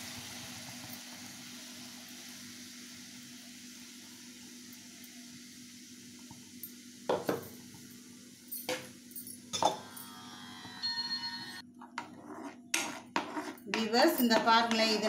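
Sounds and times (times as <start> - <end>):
spoon stirring and scraping a pan: 11.7 - 15.0.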